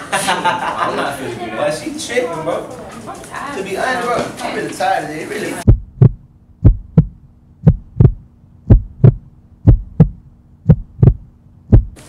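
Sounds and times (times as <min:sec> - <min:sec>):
faint steady hum: 0:05.6 - 0:12.0
heartbeat thumps: 0:05.7 - 0:12.0.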